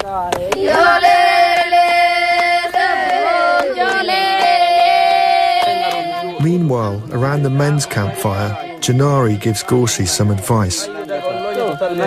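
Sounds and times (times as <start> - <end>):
women singing together: 0.5 - 6.4, 7.1 - 10.2.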